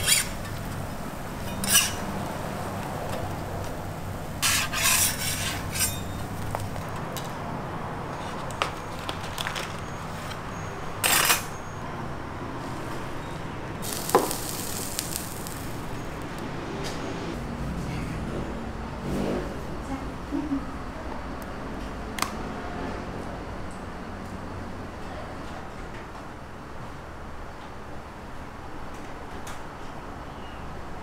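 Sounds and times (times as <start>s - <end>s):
metal scraper on griddle: 0.0s - 0.6s, 1.4s - 2.3s, 4.4s - 6.4s, 13.8s - 16.0s.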